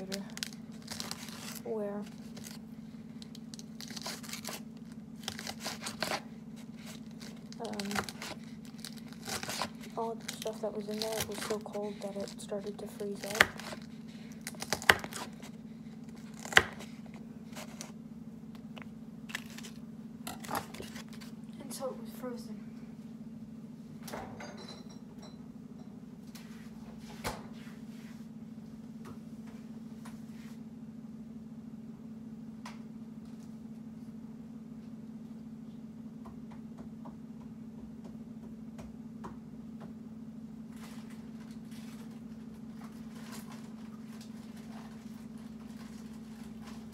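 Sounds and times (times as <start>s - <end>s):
knife crunching through lettuce: 0.0s - 18.0s, 18.7s - 21.4s
items clicking and knocking in refrigerator: 0.0s - 21.3s, 40.7s - 46.9s
steady low hum: 0.0s - 46.9s.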